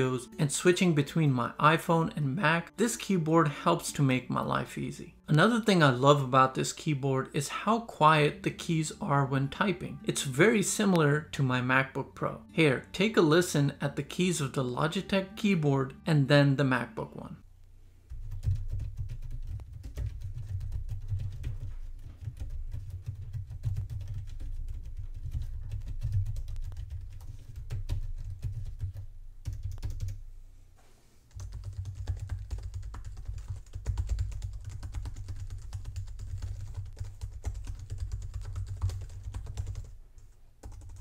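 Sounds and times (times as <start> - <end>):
quiet keyboard typing: 18.1 - 30.2, 31.3 - 41.0.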